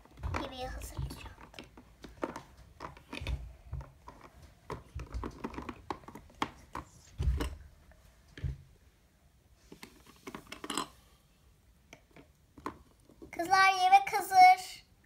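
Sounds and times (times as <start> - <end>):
plastic toys clicking and tapping: 0.0 - 7.6, 11.9 - 13.6.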